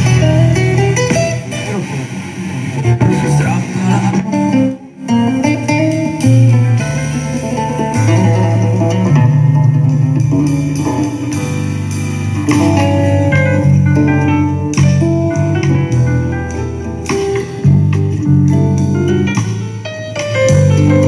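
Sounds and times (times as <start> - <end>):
music from radio loudspeaker: 0.0 - 15.4.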